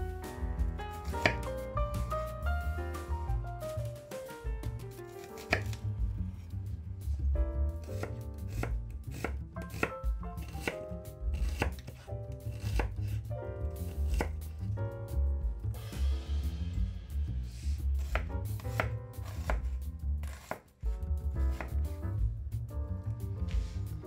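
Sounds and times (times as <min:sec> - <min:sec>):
knife strikes on cutting board: 0:01.0 - 0:01.5, 0:05.2 - 0:05.8, 0:07.9 - 0:10.8, 0:11.4 - 0:13.2, 0:14.1 - 0:14.4, 0:18.0 - 0:20.7.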